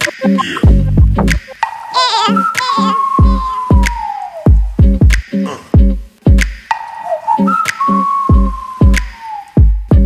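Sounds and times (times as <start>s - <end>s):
deep kick drum: 0.6s - 1.4s, 3.2s - 3.9s, 4.5s - 5.2s, 5.8s - 6.5s, 9.6s - 10.0s.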